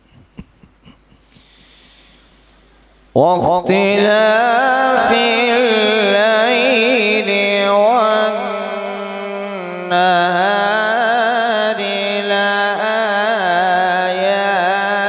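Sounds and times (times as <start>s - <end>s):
man reciting in melodic chant: 3.1s - 15.0s.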